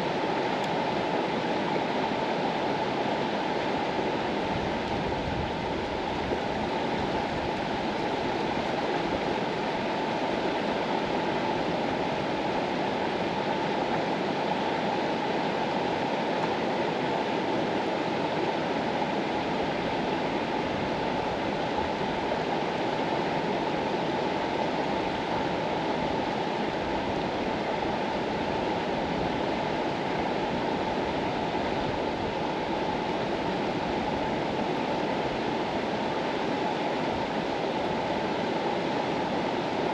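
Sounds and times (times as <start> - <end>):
river flowing: 0.0 - 39.9.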